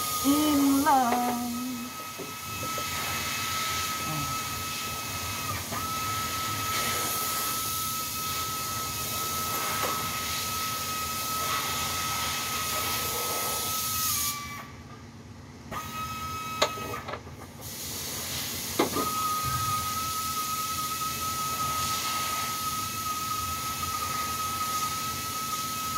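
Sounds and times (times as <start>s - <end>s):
high whine: 0.0s - 2.5s.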